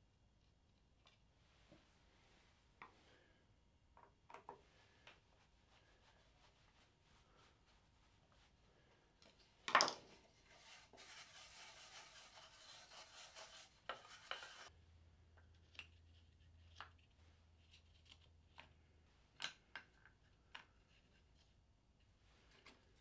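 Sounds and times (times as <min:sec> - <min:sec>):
metal tool scraping in wood: 0:10.5 - 0:14.7.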